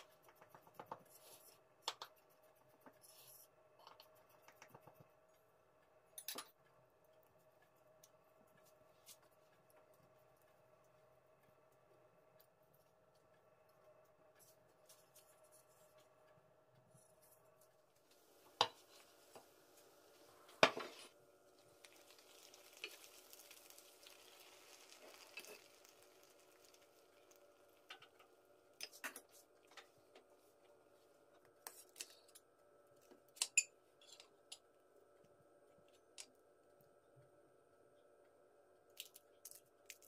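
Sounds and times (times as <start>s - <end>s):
faint steady hum: 0.0s - 40.0s.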